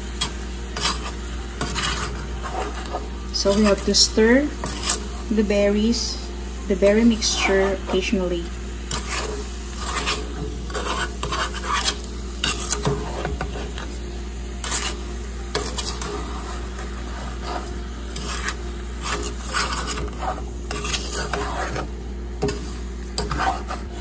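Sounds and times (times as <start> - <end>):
steady low hum: 0.0 - 24.0
wooden spatula scraping metal pot: 0.2 - 5.3, 6.8 - 13.9, 14.6 - 24.0.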